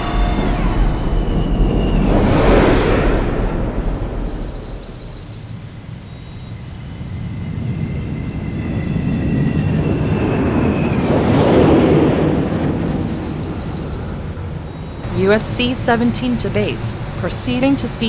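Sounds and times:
thin high whine: 0:15.0 - 0:18.0.

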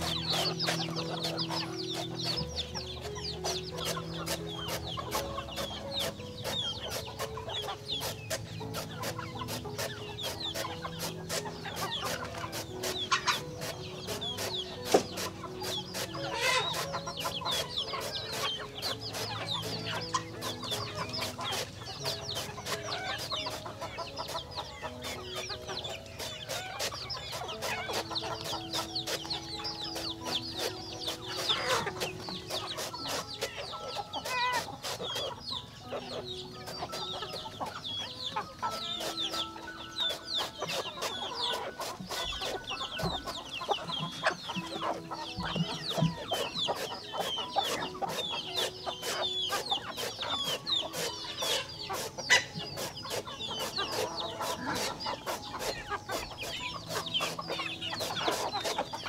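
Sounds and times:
chickens clucking and peeping: 0:00.0 - 0:59.0.

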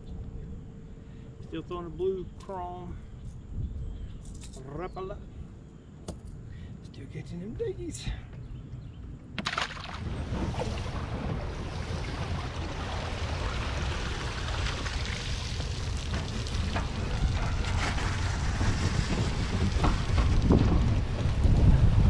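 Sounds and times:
wind noise on microphone: 0:02.3 - 0:06.8, 0:08.0 - 0:22.0
road rumble of towed trailer: 0:10.8 - 0:22.0.

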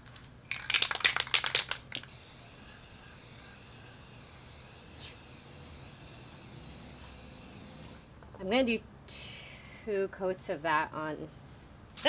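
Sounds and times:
spray can hissing: 0:00.5 - 0:08.2
spray can rattling: 0:00.5 - 0:08.2.

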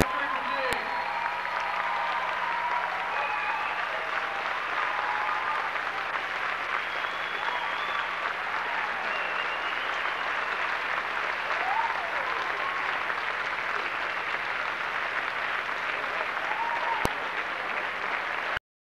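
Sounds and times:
audience applauding: 0:00.0 - 0:18.6
people cheering: 0:00.0 - 0:18.6.

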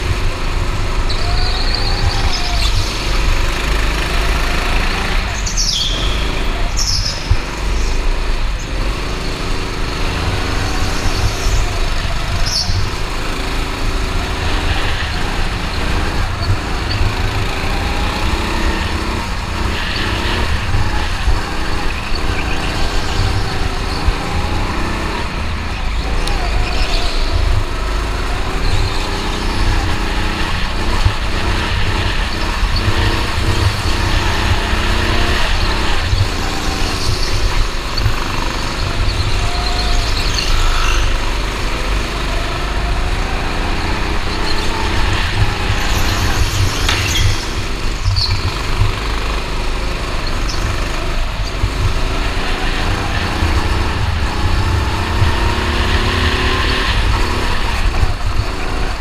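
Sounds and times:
go-kart engine revving: 0:00.0 - 0:59.0.

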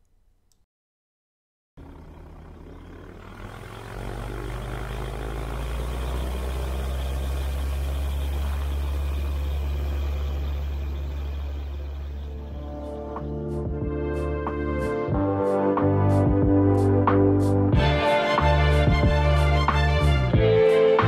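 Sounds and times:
light aircraft engine drone: 0:01.8 - 0:14.8.

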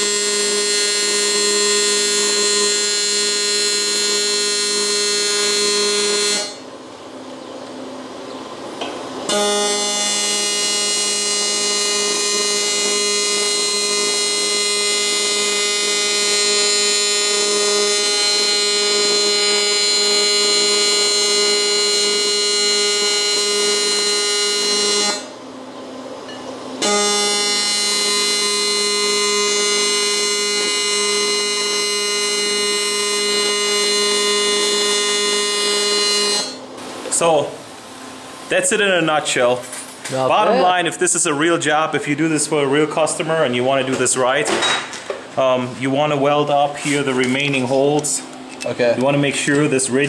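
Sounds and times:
welding arc buzzing: 0:00.0 - 0:06.7, 0:09.2 - 0:25.4, 0:26.8 - 0:41.6.

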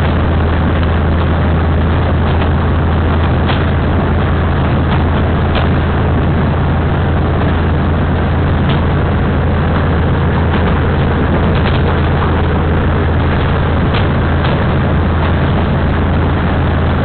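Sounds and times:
diesel engine drone: 0:00.0 - 0:17.0
train running noise: 0:00.0 - 0:17.0.

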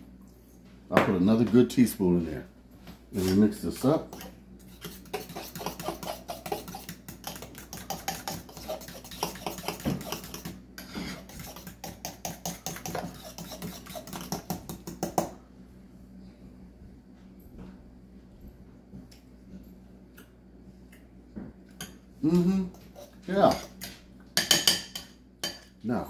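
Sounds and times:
utensil stirring in a bowl: 0:03.1 - 0:15.3.

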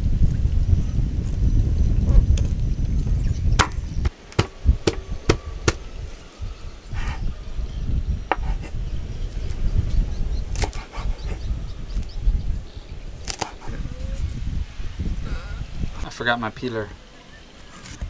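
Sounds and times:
wooden chopping knocks: 0:03.6 - 0:03.8, 0:04.4 - 0:05.8.

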